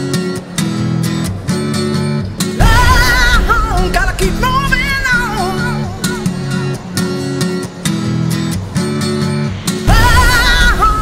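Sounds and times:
strummed guitar chords: 0.0s - 11.0s
person singing: 2.6s - 6.9s, 9.6s - 11.0s.

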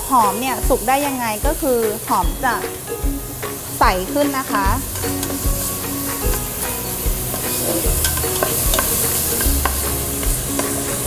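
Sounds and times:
onion sizzling in a pan: 0.0s - 11.0s
spatula scraping a pan: 4.7s - 11.0s.

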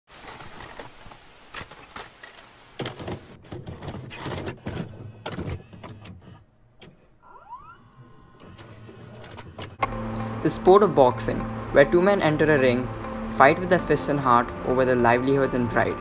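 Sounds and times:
tape mechanism clicks and clunks: 0.2s - 7.2s, 7.9s - 10.0s.

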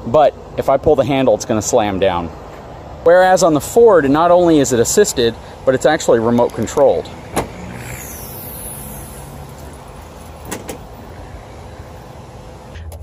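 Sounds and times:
tailgate lowering: 10.2s - 11.0s.

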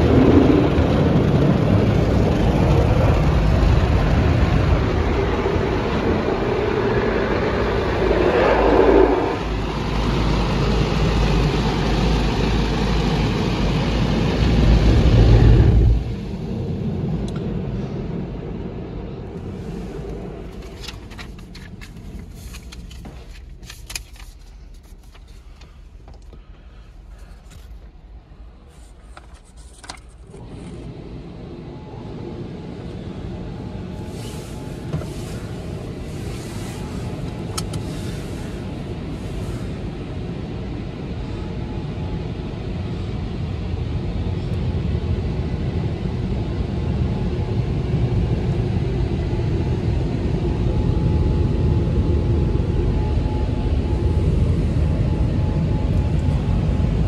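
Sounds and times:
car wash rushing: 0.0s - 24.3s, 30.2s - 40.7s.

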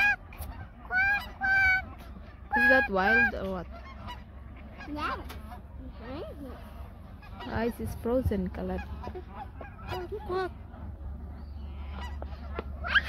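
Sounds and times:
geese honking: 0.0s - 13.0s.

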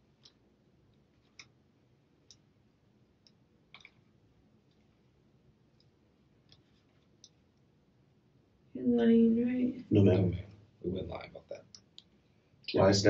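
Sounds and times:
faint clicks: 0.0s - 1.6s, 2.2s - 2.5s, 3.2s - 5.1s, 5.7s - 7.7s.

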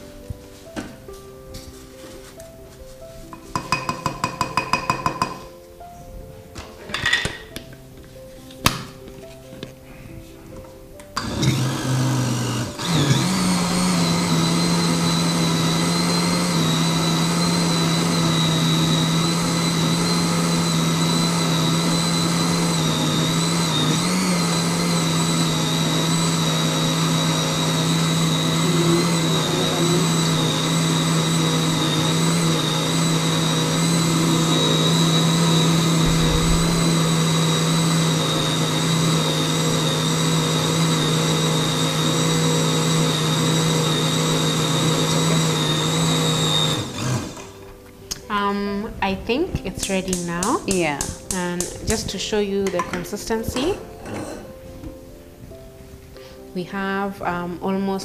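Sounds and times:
blender motor whine: 11.2s - 47.6s.

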